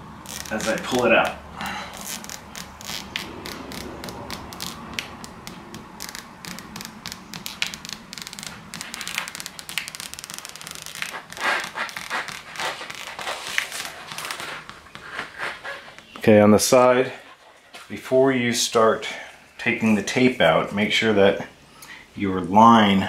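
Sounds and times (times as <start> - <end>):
tape liner peeling with crackles: 0.0 - 16.3.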